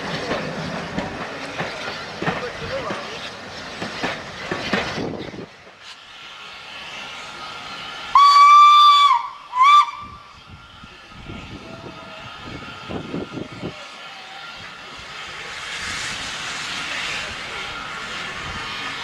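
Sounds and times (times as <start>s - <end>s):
steam locomotive whistle: 8.1s - 10.4s.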